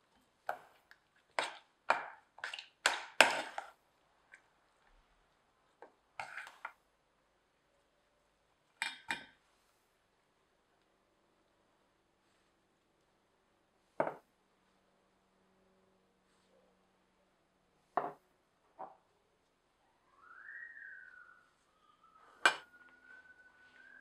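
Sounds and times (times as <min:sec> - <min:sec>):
metal utensil scraping saucepan: 0:06.2 - 0:06.7.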